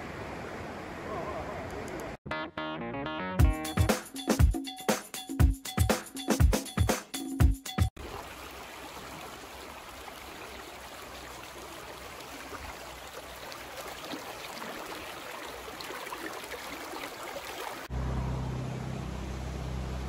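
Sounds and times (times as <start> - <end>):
creek flowing over stones: 8.0 - 17.9.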